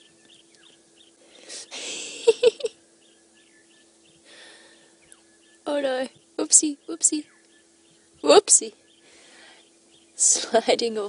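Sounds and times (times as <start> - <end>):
high chirping call: 0.0 - 10.3
faint steady hum: 0.0 - 11.0.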